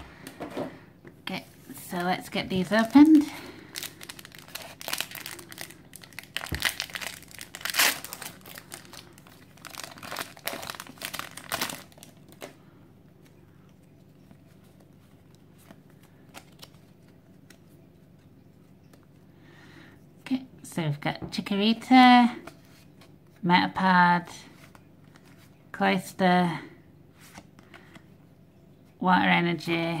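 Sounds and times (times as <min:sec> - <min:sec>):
foil wrapper crinkling and tearing: 0:02.8 - 0:12.6.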